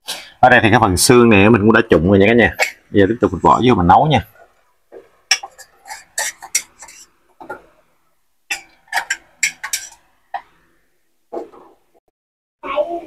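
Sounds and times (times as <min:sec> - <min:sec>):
cookware metallic clicks: 0:08.5 - 0:10.0.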